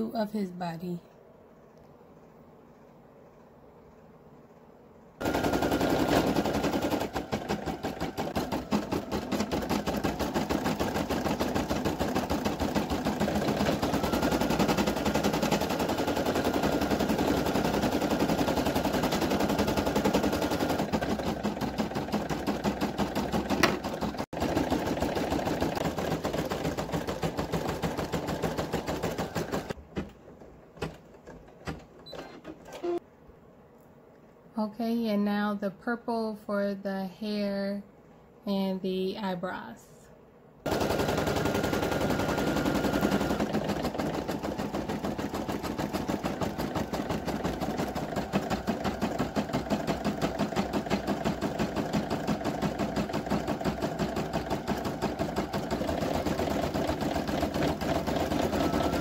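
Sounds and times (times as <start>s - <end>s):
embroidery machine stitching: 5.2s - 29.8s, 40.6s - 59.0s.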